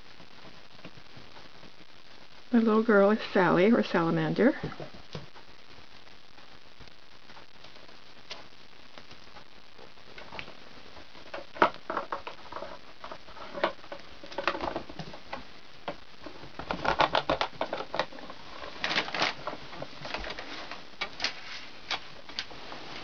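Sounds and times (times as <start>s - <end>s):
kittens playing with toys: 10.1s - 22.5s.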